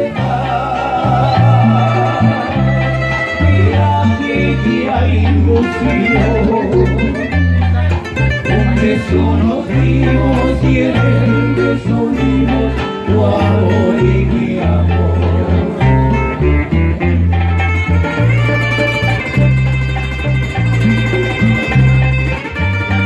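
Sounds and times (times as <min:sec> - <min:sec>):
electric bass line: 0:00.0 - 0:23.0
guitar picking melody: 0:00.0 - 0:23.0
plucked acoustic guitars: 0:00.0 - 0:23.0.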